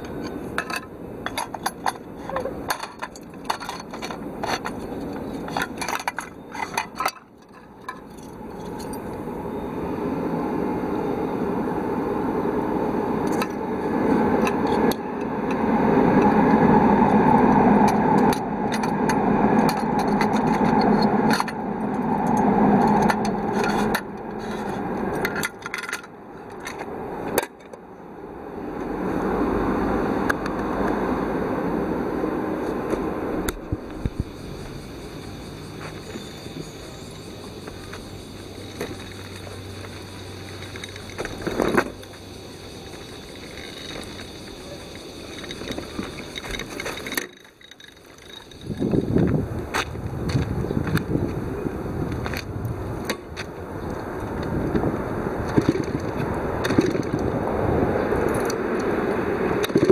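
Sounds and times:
metal clicks and scrapes: 0:00.0 - 0:09.0, 0:17.8 - 0:27.8, 0:43.0 - 0:49.0.

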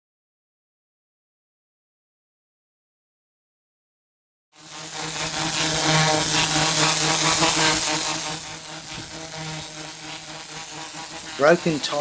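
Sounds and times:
pump motor drone: 0:04.6 - 0:12.0
water jet hissing on tiles: 0:04.6 - 0:12.0.

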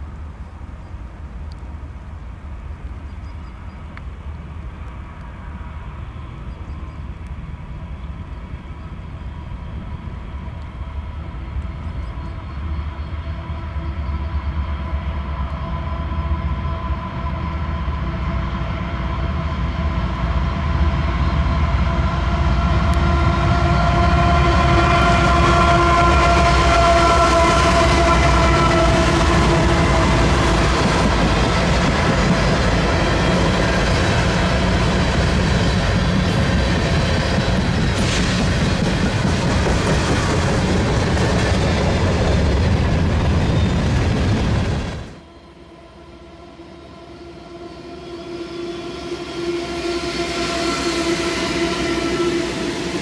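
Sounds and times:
train rumble: 0:00.0 - 0:53.0
locomotive engine note: 0:18.6 - 0:53.0.

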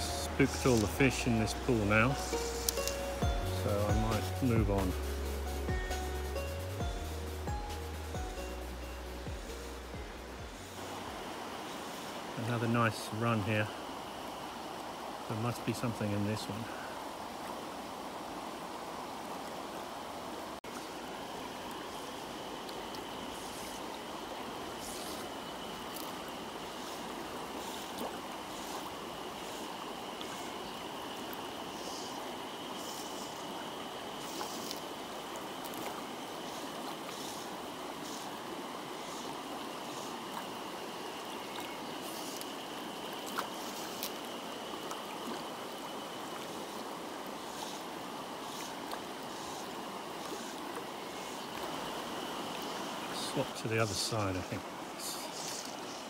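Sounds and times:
river flowing over stones: 0:00.0 - 0:56.0.

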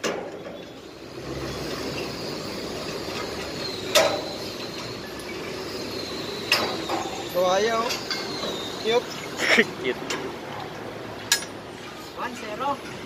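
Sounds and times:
steady background noise: 0:00.0 - 0:13.0.

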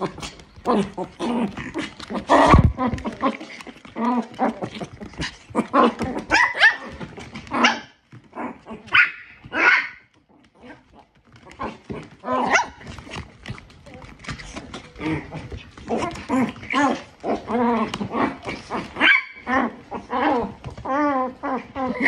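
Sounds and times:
small dogs barking: 0:05.6 - 0:08.0, 0:08.8 - 0:10.1, 0:12.2 - 0:13.0, 0:18.6 - 0:20.2.

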